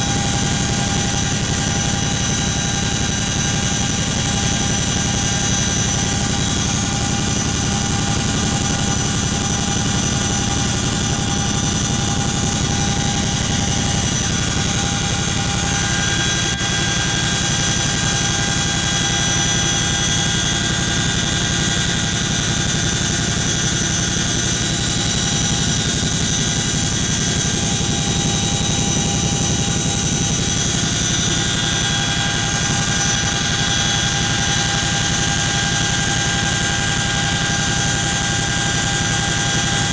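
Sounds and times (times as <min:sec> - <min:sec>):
helicopter cabin low rumble: 0:00.0 - 0:20.4, 0:23.7 - 0:35.1
high whine: 0:00.0 - 0:39.9.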